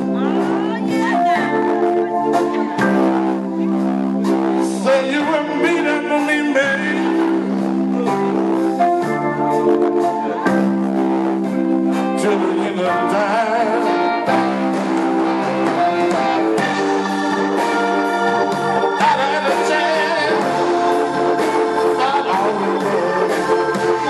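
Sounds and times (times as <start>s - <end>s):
drums: 0.0s - 24.0s
electric guitar: 0.0s - 24.0s
organ chords: 0.0s - 24.0s
man singing: 4.6s - 8.6s, 12.0s - 14.7s, 19.0s - 24.0s.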